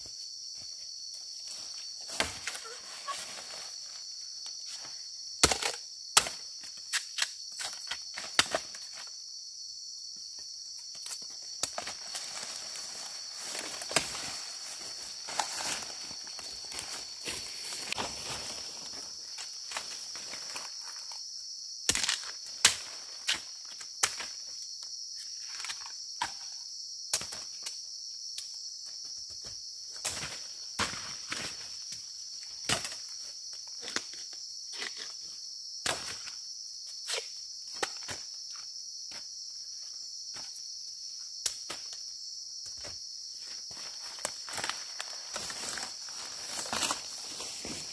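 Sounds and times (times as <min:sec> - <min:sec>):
footsteps crunching dry leaves: 0:11.9 - 0:20.4, 0:43.8 - 0:47.9.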